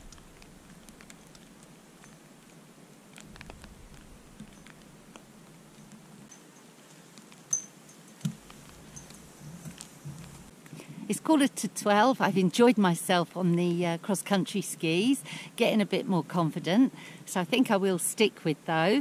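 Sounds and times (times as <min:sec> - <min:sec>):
faint patter of light ticks: 0:00.0 - 0:11.0.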